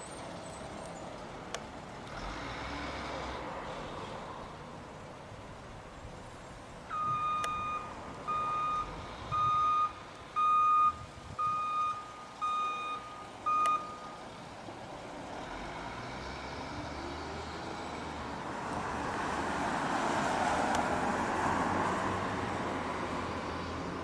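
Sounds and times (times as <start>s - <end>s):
truck backup alarm beeping: 6.9s - 14.3s.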